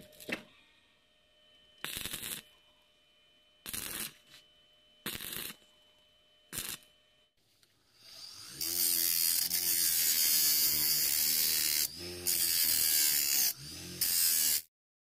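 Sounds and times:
grinder motor humming: 0:07.9 - 0:14.7.

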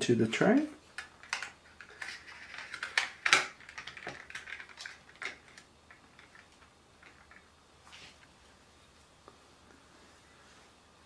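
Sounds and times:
small plastic clicks and scrapes: 0:01.0 - 0:07.5.

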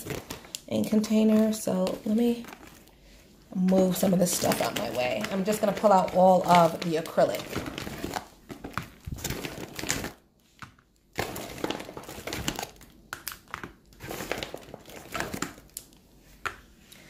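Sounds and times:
packaging crinkling: 0:00.0 - 0:16.0
plastic jars clacking: 0:03.6 - 0:15.9.

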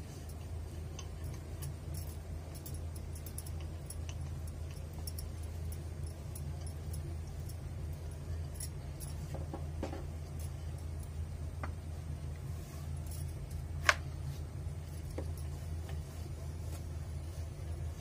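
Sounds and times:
low steady hum: 0:00.0 - 0:18.0
glass bangles clinking: 0:00.2 - 0:11.3, 0:13.0 - 0:13.8, 0:14.7 - 0:16.2.

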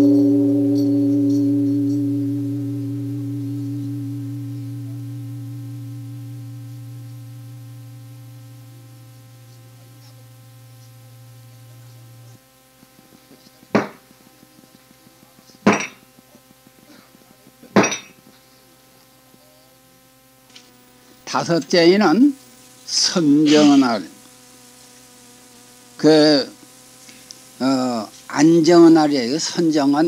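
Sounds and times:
deep bell ringing: 0:00.0 - 0:12.2
sharp knocks: 0:13.8 - 0:14.0.

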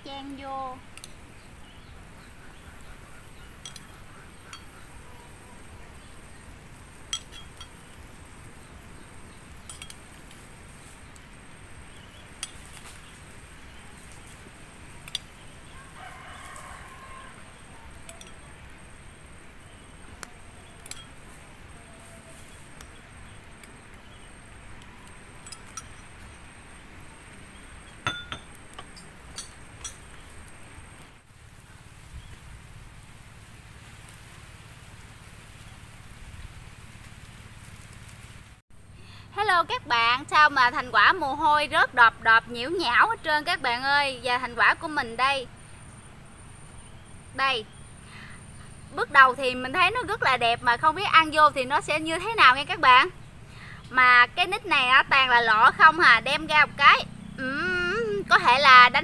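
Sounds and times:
steady low hiss: 0:00.0 - 0:59.0
light metallic clinks: 0:03.4 - 0:05.0, 0:07.1 - 0:08.1, 0:09.6 - 0:10.2, 0:18.0 - 0:18.6, 0:20.7 - 0:21.4, 0:25.0 - 0:26.5, 0:28.0 - 0:30.3.

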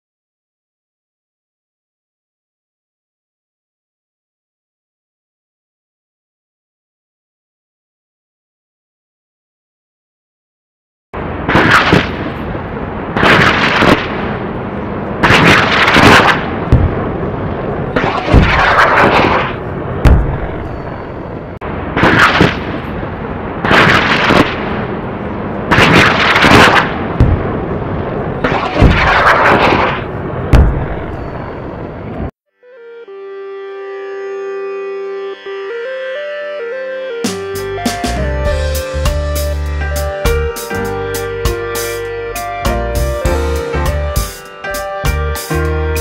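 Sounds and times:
loud booms: 0:11.2 - 0:32.3
deep thud: 0:16.7 - 0:17.0, 0:20.0 - 0:20.7, 0:30.5 - 0:31.2.

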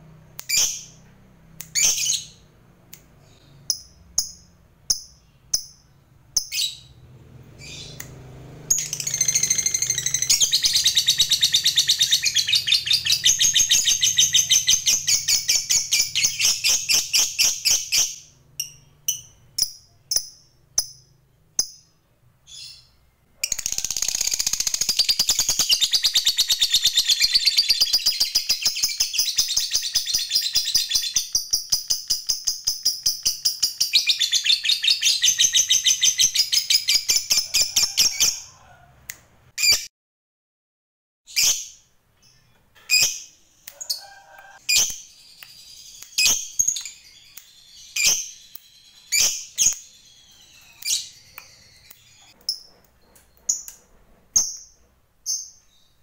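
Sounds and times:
lovebird chirps: 0:00.4 - 0:02.5, 0:03.2 - 0:07.0, 0:07.6 - 0:38.5, 0:41.3 - 0:56.0
lovebird rapid chattering: 0:08.7 - 0:17.8, 0:23.4 - 0:34.2.

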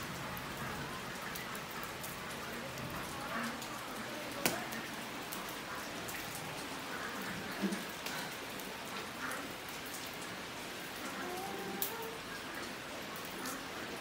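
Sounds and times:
heavy rain falling: 0:00.0 - 0:14.0.

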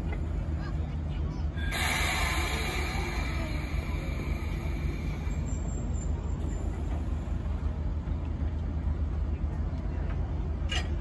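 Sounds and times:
low rumble: 0:00.0 - 0:09.2
steam locomotive whistle: 0:01.6 - 0:05.5
faint hiss: 0:01.6 - 0:05.9.

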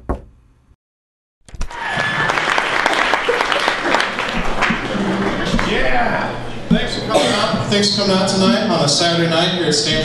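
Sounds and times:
audience applauding: 0:01.6 - 0:06.2.

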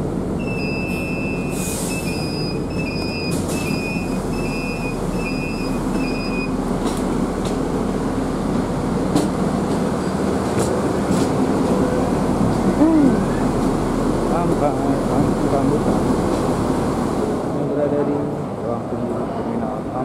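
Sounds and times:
vehicle rumble from inside: 0:00.0 - 0:17.4
repeating electronic beep: 0:00.4 - 0:06.5.

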